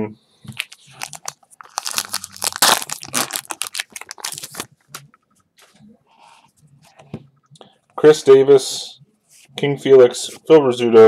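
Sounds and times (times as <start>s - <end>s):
card pack wrapper tearing: 0.6s - 4.7s.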